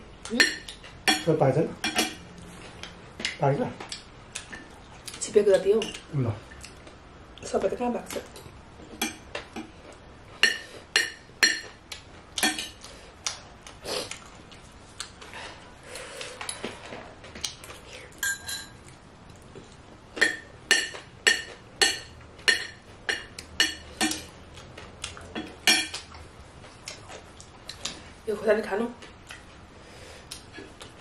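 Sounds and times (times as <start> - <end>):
cutlery clinking on ceramic plate: 18.2 - 18.8.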